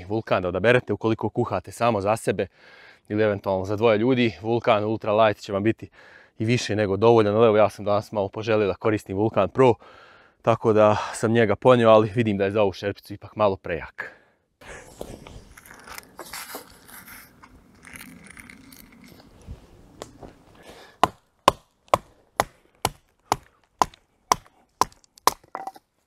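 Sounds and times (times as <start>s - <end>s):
wood chopping knocks: 21.0s - 25.8s.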